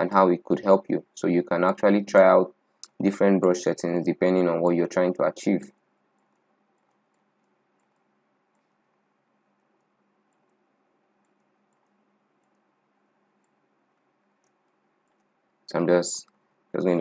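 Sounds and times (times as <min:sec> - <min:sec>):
faint steady hum: 0:00.0 - 0:17.0
computer mouse clicks: 0:05.7 - 0:15.4, 0:16.2 - 0:16.6.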